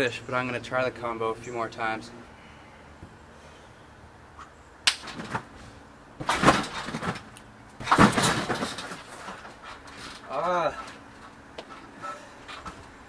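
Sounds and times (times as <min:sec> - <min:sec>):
trampoline landing thuds: 0:04.9 - 0:13.0.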